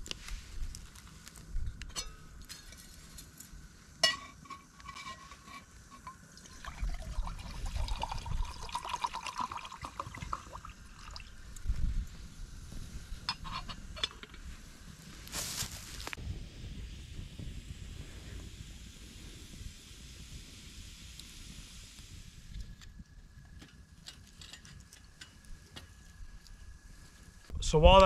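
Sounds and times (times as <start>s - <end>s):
water pouring into a mug: 6.4s - 11.4s.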